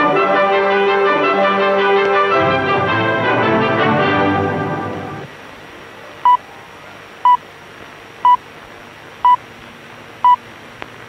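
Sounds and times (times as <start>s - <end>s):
shortwave radio hiss: 5.0s - 11.0s.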